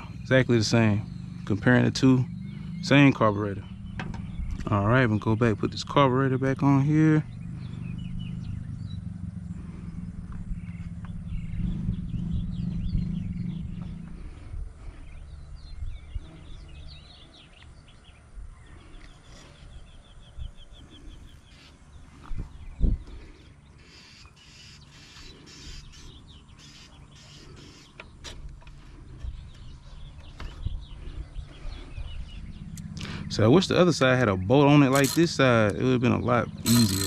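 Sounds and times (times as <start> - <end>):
birds chirping: 0.0 - 37.0
small parts clicking and knocking: 34.9 - 35.2, 36.7 - 37.0.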